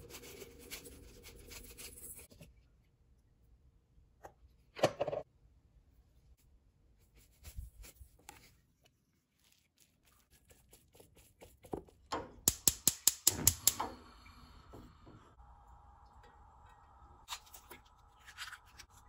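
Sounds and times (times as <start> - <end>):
gas stove igniter clicking: 12.4 - 14.0
faint steady hum: 13.8 - 19.0.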